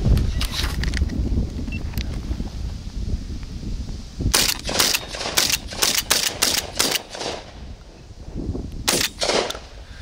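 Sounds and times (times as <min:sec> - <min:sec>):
sharp cracks: 0:04.3 - 0:07.6, 0:08.8 - 0:09.8.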